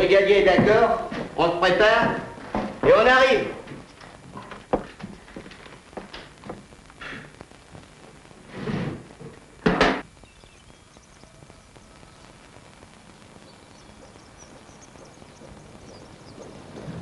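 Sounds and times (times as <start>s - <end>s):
low steady background: 3.3s - 17.0s
short scraping noise: 8.5s - 9.0s
door shutting with a thud: 9.6s - 10.0s
faint high chirps: 10.1s - 16.7s.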